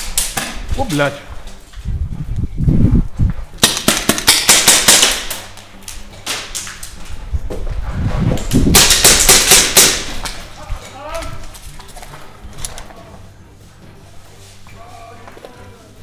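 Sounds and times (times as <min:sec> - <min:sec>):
airsoft pistols firing: 0:03.6 - 0:05.6, 0:08.7 - 0:10.4.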